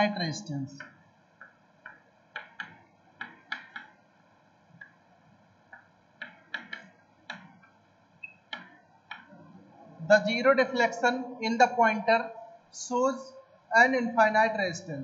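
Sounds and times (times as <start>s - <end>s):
chalk writing on chalkboard: 5.7s - 7.7s.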